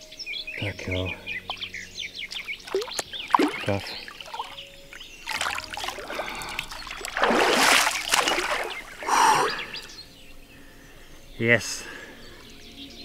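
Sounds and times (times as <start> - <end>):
water splashing and trickling: 2.2 - 9.9
water rushing: 2.6 - 4.6, 5.2 - 9.8.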